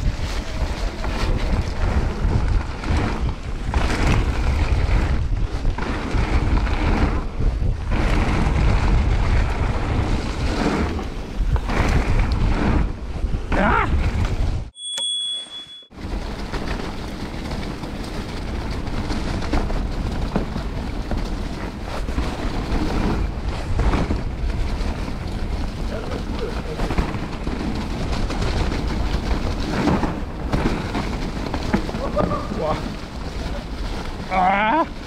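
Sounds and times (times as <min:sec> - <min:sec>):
mountain bike rumbling and rattling: 0:00.0 - 0:14.7, 0:15.9 - 0:35.0
wind noise on microphone: 0:00.0 - 0:14.8, 0:15.9 - 0:35.0
bike knocking over bumps: 0:16.0 - 0:34.3.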